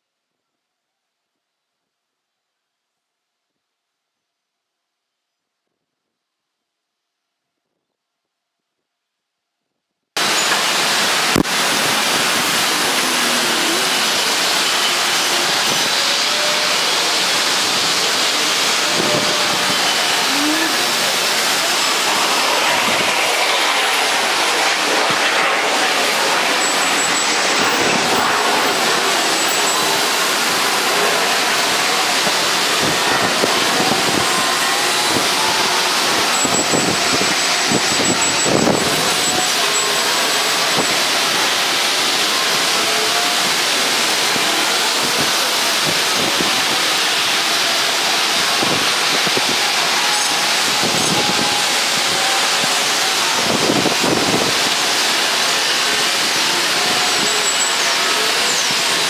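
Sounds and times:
faint high whine: 0:10.2 - 0:59.0
trucks spraying fluid: 0:10.2 - 0:59.0.

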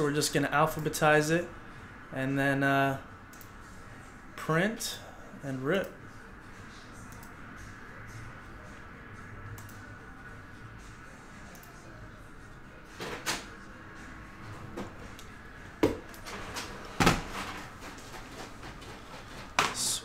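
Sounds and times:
low steady hum: 0:00.0 - 0:20.0
objects knocking and clunking: 0:15.8 - 0:19.9.

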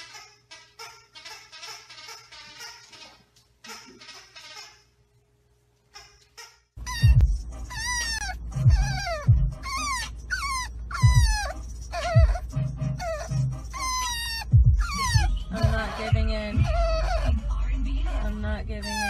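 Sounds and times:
puppy whining: 0:06.0 - 0:19.0.

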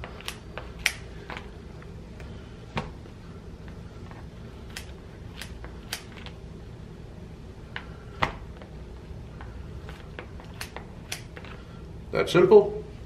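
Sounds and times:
steady low hum: 0:00.0 - 0:13.0
scissors snipping crisp tortilla: 0:00.2 - 0:01.0, 0:04.7 - 0:06.3, 0:10.5 - 0:11.4.

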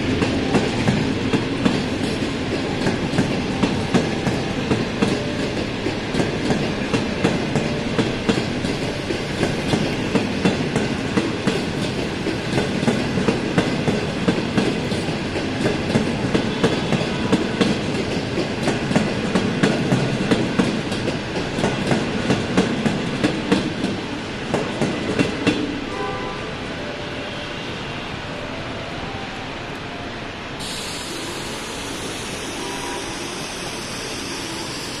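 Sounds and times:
train wheels clicking over rail joints: 0:00.0 - 0:25.8
rumble of train coaches rolling: 0:00.0 - 0:35.0.

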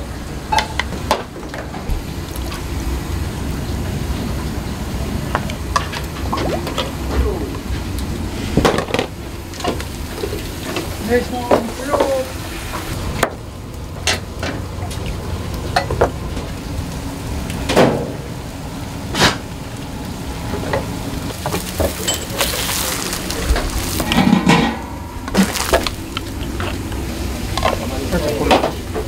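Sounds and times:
background hum: 0:00.0 - 0:29.0
background sizzle: 0:00.0 - 0:29.0
utensils knocking and clinking: 0:21.4 - 0:28.8.

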